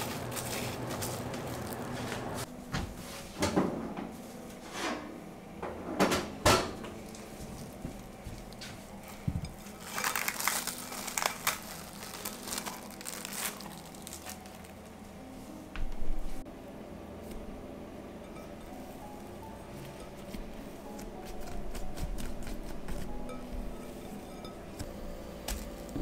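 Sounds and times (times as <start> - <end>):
cling wrap crinkling: 0.0 - 2.4, 7.0 - 15.0
kitchenware knocks and clunks: 2.8 - 4.2, 5.6 - 7.0.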